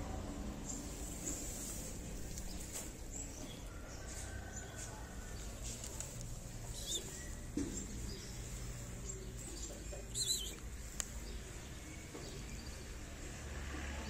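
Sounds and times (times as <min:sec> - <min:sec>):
high wavering bird chirps: 0:06.6 - 0:08.4, 0:09.0 - 0:10.9.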